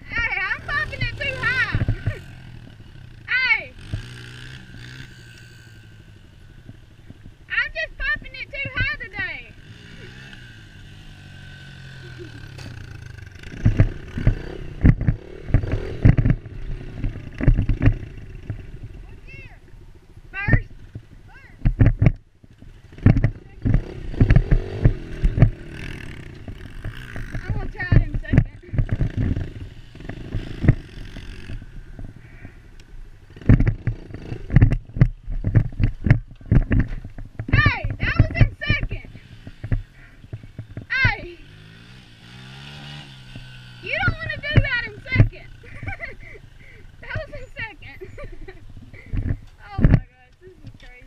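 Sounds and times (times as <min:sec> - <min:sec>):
dirt bike engine running: 0:00.0 - 0:51.0
loud irregular thumps and knocks: 0:33.4 - 0:38.5.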